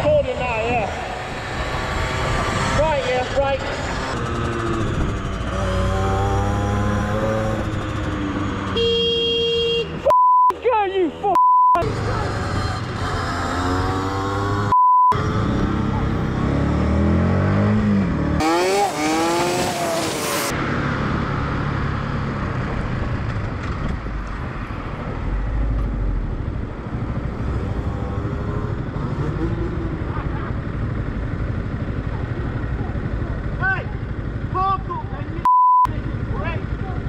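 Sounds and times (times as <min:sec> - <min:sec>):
vehicle engine and road noise: 0:00.0 - 0:37.0
censor bleep: 0:10.1 - 0:10.6, 0:11.4 - 0:11.8, 0:14.7 - 0:15.2, 0:35.4 - 0:35.9.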